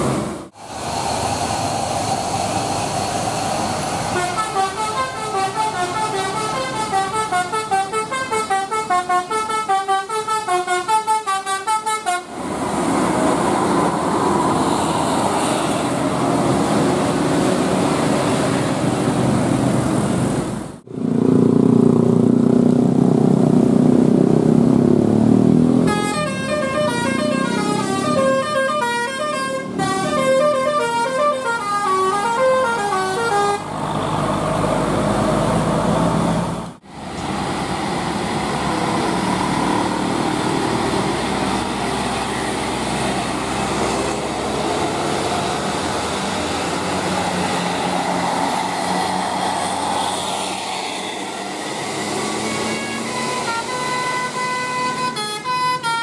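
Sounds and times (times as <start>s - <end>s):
bus engines: 0.0s - 56.0s
traffic: 0.0s - 56.0s
bus horns playing melodic tunes: 4.1s - 12.4s, 25.8s - 33.8s, 52.1s - 56.0s.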